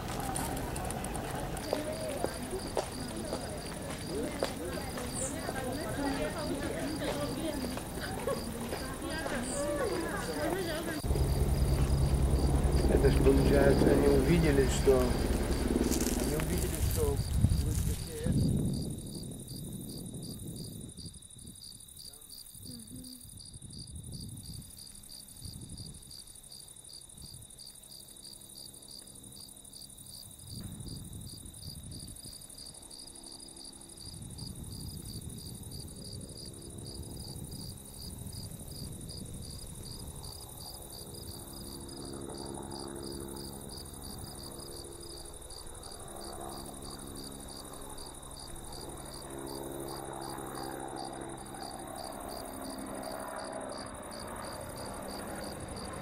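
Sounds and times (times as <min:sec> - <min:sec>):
continuous high buzz: 0:00.0 - 0:56.0
insects chirping: 0:00.0 - 0:56.0
low rumbling noise: 0:07.8 - 0:21.0.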